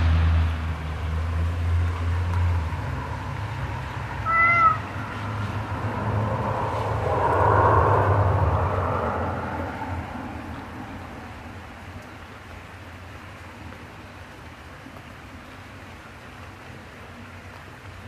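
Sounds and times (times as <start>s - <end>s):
cat meowing: 4.2s - 4.9s
steady low rumble: 4.8s - 11.5s.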